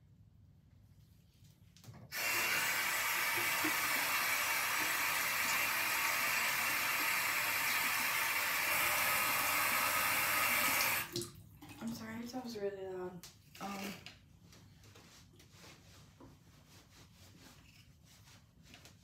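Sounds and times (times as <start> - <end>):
tap water splashing into basin: 10.6 - 12.0.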